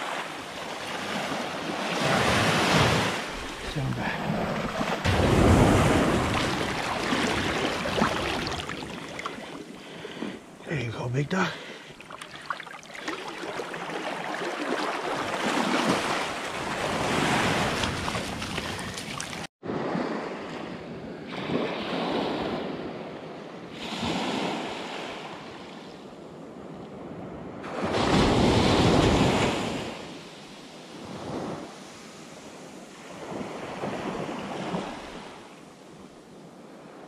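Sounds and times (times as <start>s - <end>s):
waves washing up a beach: 0.0s - 37.0s.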